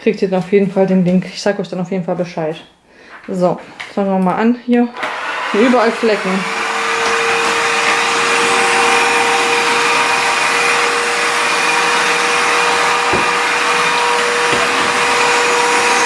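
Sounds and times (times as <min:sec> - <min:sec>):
floor washer suction and motor hum: 0:05.0 - 0:16.0.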